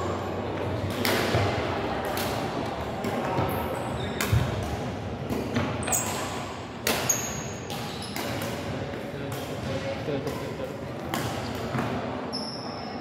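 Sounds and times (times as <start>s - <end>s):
rackets striking shuttlecock: 4.1s - 12.0s.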